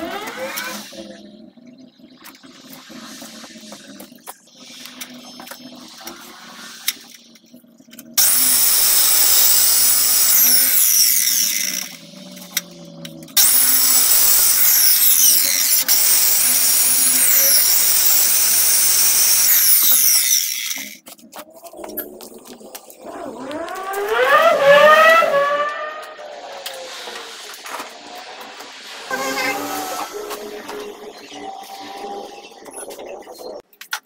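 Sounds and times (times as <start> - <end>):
power tool cutting concrete: 8.2 - 12.1, 13.4 - 21.0, 23.0 - 25.9, 26.6 - 31.4.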